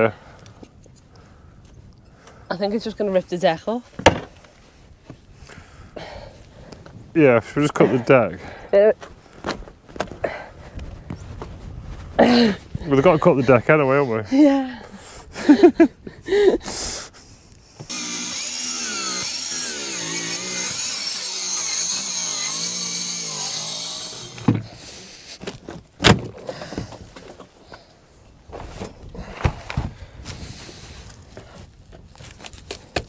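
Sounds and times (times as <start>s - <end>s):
wood scraping: 3.8s - 5.3s, 17.8s - 27.9s
knocks on wood: 4.0s - 4.3s
angle grinder cutting wood: 17.9s - 25.0s.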